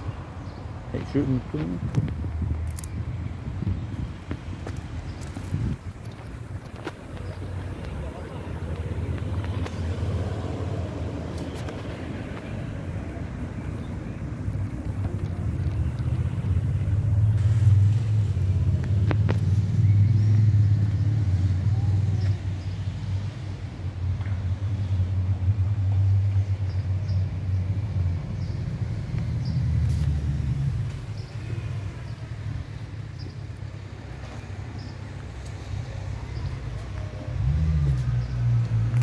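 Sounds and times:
wind buffeting microphone: 0.0s - 19.4s.

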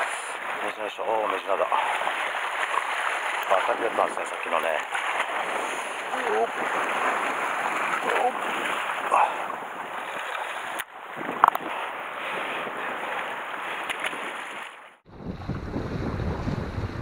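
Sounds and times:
waves washing against rocks: 0.0s - 17.0s
wind buffeting microphone: 11.0s - 14.3s, 15.0s - 17.0s.

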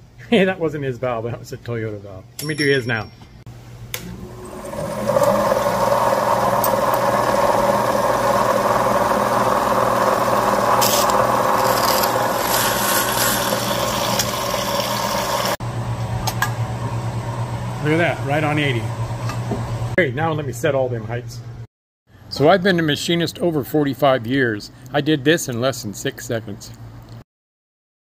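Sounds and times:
valve grinder running: 4.0s - 15.6s.

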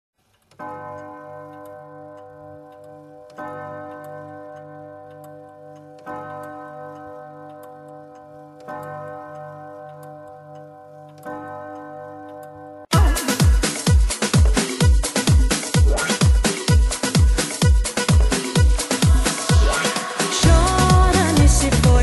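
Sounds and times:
clock ticking: 0.2s - 22.0s
held chord of steady tones: 18.4s - 22.0s.

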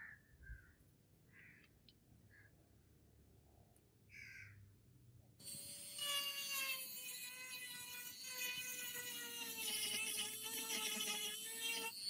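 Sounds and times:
rotary tool motor whine: 5.4s - 12.0s.

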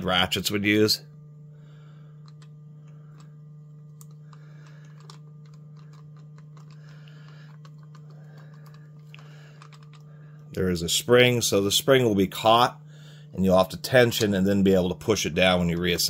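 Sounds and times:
low background hum: 0.0s - 16.0s
small clicks and rubbing: 2.2s - 10.1s.

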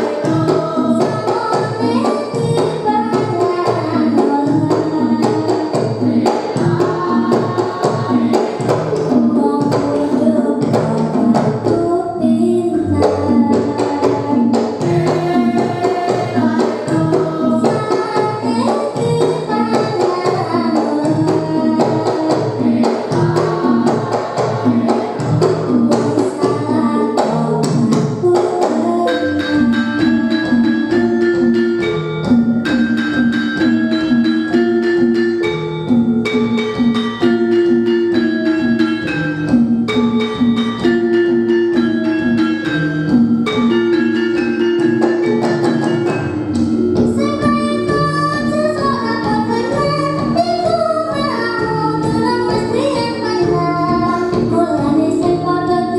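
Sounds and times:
person singing: 0.0s - 31.2s, 46.6s - 55.9s
gamelan music: 0.0s - 55.9s
metallophone notes: 0.0s - 55.9s.

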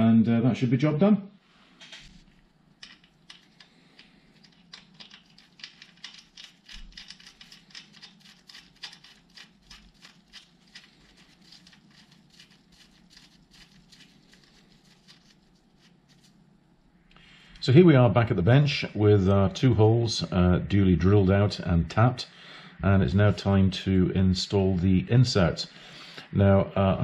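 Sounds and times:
light clicks and crinkles: 1.8s - 16.4s.

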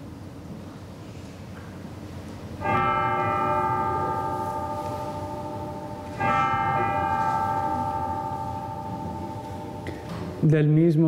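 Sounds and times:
altar bell ringing: 2.6s - 10.5s.

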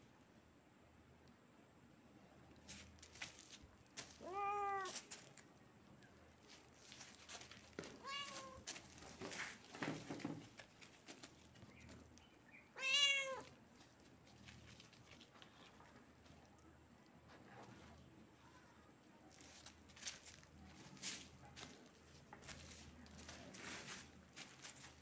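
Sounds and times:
small clicks and rustles: 2.5s - 12.4s, 13.4s - 25.0s
kitten meowing: 4.2s - 4.9s, 12.8s - 13.4s.

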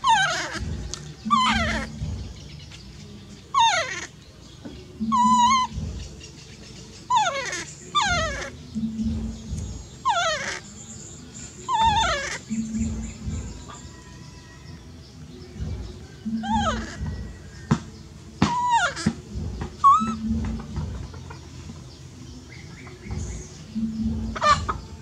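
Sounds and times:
baby monkey crying: 0.0s - 2.4s, 3.5s - 4.2s, 5.0s - 6.1s, 7.0s - 14.8s, 16.3s - 17.7s, 18.4s - 21.5s, 23.1s - 25.0s.

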